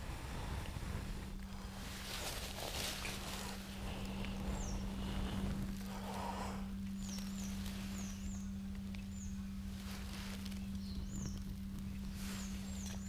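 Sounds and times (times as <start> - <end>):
faint rustles of tinder: 0.0 - 13.0
steady low hum: 0.0 - 13.0
small bird chirping: 3.0 - 5.4, 6.8 - 13.0.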